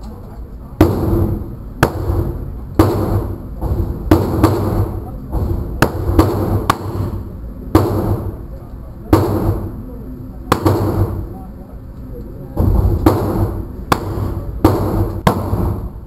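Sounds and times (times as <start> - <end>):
gunshots ringing indoors: 0.8 - 11.4, 12.6 - 16.0.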